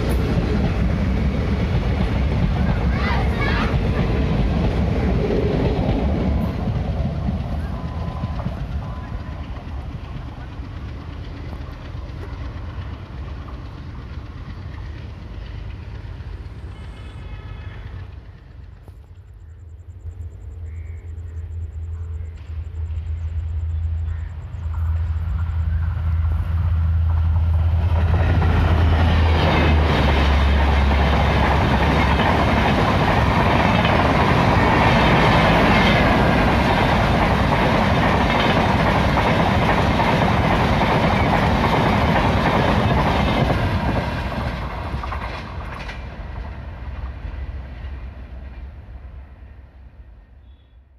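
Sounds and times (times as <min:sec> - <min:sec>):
train wheels clattering on rails: 0:00.0 - 0:19.3, 0:22.1 - 0:49.2
diesel locomotive engine droning: 0:00.0 - 0:50.9.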